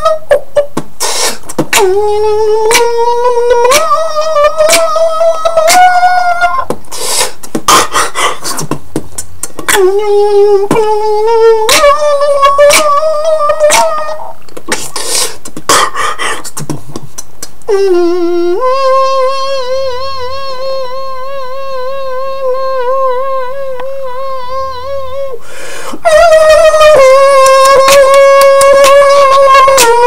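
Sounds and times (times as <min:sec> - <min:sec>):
person beatboxing: 0:00.0 - 0:20.8, 0:21.8 - 0:30.0
hummed tones: 0:01.6 - 0:06.8, 0:09.5 - 0:14.5, 0:17.7 - 0:25.4
long hummed tone with vibrato: 0:01.7 - 0:06.7, 0:09.7 - 0:14.5, 0:17.7 - 0:30.0.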